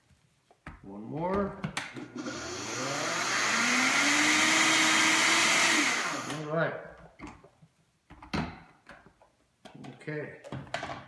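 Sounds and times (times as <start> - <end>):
blender grinding oats: 2.2 - 6.4
blender motor winding down: 2.2 - 6.5.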